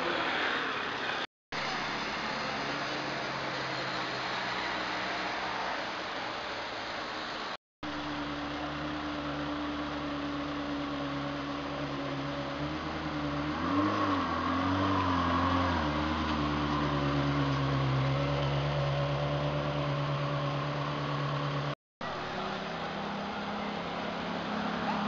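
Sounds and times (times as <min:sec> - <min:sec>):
car engine running at low revs: 0:07.8 - 0:25.0.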